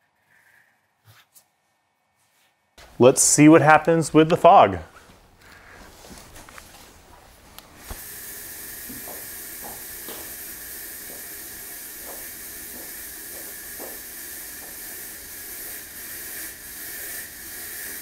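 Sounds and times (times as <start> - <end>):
fog machine hissing: 7.8 - 18.0.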